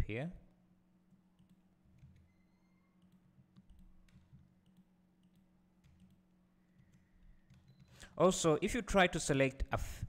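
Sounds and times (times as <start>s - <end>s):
mouse and keyboard clicks: 1.4s - 2.4s.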